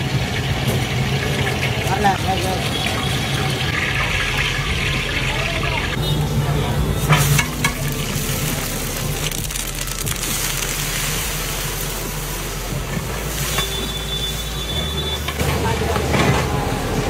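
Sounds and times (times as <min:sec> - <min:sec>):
onions sizzling in hot oil: 0:07.0 - 0:15.6.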